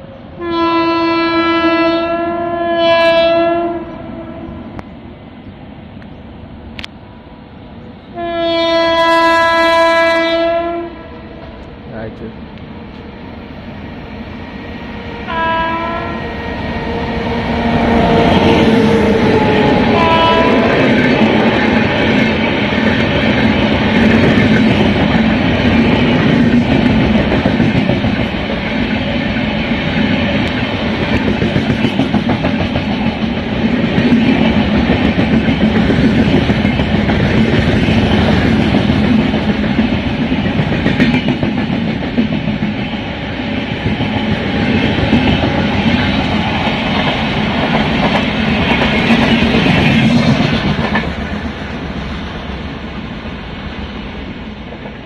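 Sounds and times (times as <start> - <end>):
train wheels rumbling on rails: 9.8 - 55.0.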